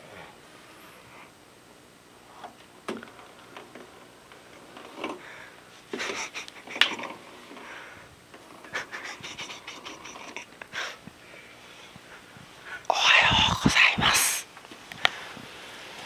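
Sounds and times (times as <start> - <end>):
roll-up blind sliding open: 3.1 - 5.2.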